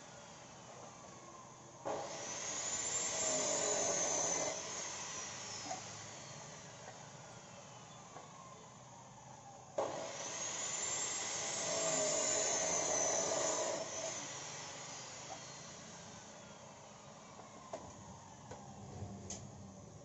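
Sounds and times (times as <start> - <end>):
chop saw cutting wood: 1.8 - 6.3, 9.8 - 16.0.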